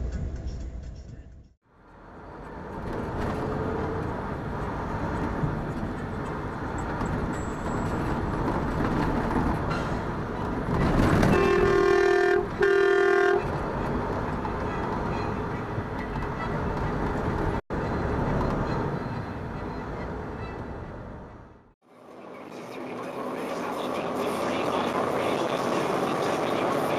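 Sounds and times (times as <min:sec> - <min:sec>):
road and engine noise: 0:00.0 - 0:26.9
truck horn blasts: 0:11.2 - 0:13.5.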